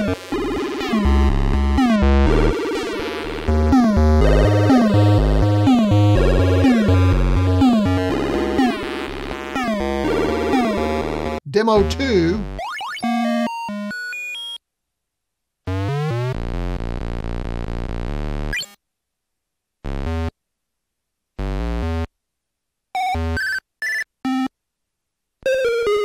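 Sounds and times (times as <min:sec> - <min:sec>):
chiptune music: 0:00.0 - 0:14.6, 0:25.5 - 0:26.0.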